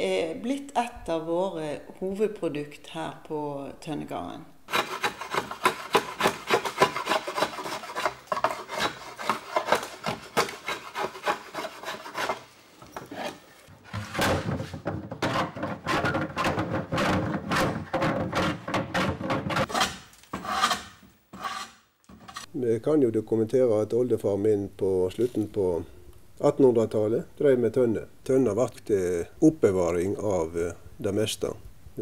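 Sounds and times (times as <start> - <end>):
blade shaving wood: 4.7 - 12.5.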